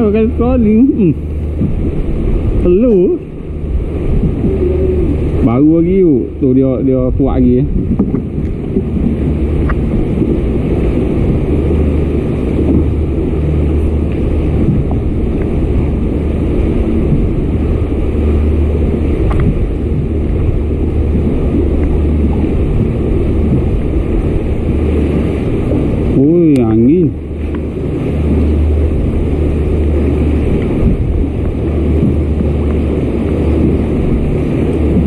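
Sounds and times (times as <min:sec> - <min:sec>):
motor rumbling: 0:00.0 - 0:35.0
water washing past hull: 0:00.0 - 0:35.0
wind on microphone: 0:00.0 - 0:35.0.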